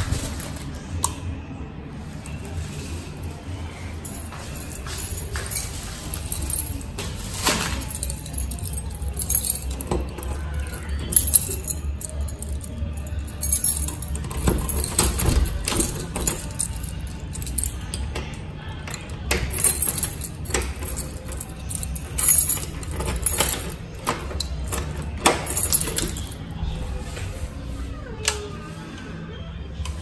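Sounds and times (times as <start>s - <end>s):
background music: 0.0s - 30.0s
keys jangling: 4.0s - 27.2s.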